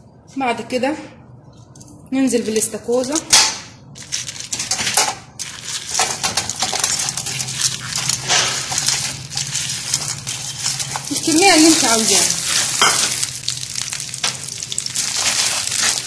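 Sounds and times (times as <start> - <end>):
oil sizzling: 5.4 - 16.0
shells clattering in metal pan: 5.9 - 13.3.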